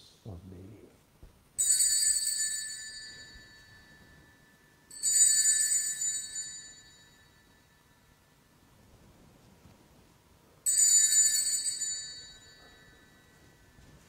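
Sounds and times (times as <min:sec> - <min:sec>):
bell ringing: 0:01.6 - 0:08.5, 0:10.6 - 0:14.0.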